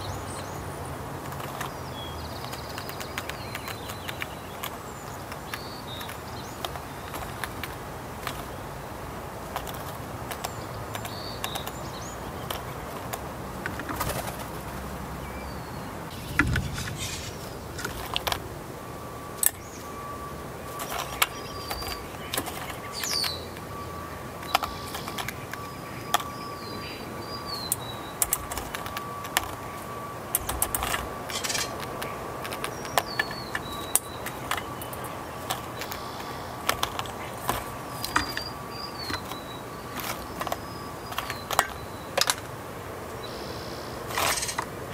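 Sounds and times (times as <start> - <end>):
wing flaps: 12.5 - 14.9
high bird chirps: 15.2 - 18.2, 19.1 - 42.3, 43.1 - 44.7
faint steady high tone: 15.3 - 44.9.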